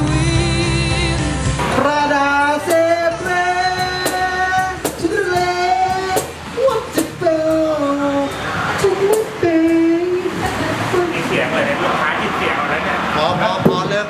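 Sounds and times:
high wordless singing voice: 0:00.0 - 0:11.8
acoustic guitar: 0:00.0 - 0:12.3
percussion hits: 0:01.4 - 0:07.7, 0:13.2 - 0:14.0.

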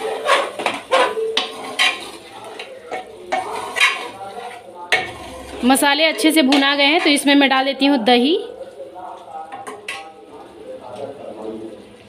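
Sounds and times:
spoon scraping metal pot: 0:00.0 - 0:07.3.

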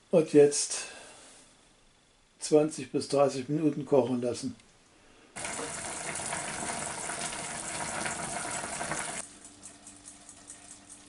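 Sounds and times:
faint steady hum: 0:00.0 - 0:11.0
pot boiling with bubbling hiss: 0:05.4 - 0:11.0.

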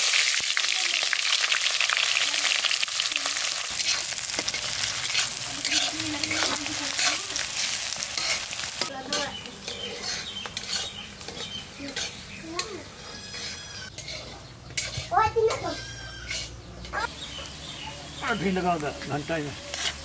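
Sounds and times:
onions sizzling in hot oil: 0:00.0 - 0:20.0
metal spatula scraping pan: 0:03.7 - 0:17.0, 0:19.0 - 0:20.0.

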